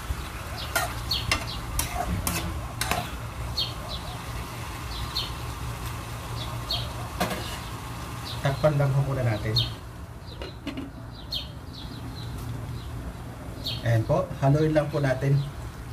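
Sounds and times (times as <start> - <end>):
metal spoon scraping a pan: 0.7 - 3.2
chicken sizzling in a pan: 4.2 - 8.5.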